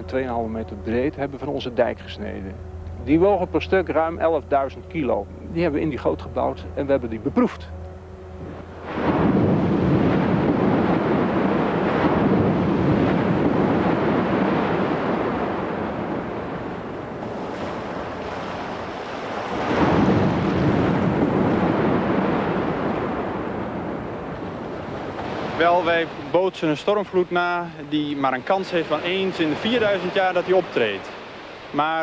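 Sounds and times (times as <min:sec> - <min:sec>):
waves breaking and rushing up slope: 0:08.4 - 0:32.0.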